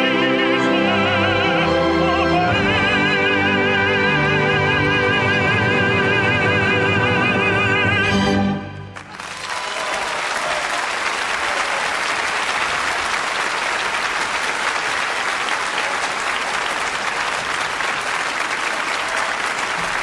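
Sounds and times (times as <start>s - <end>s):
large audience applauding: 8.8s - 20.0s.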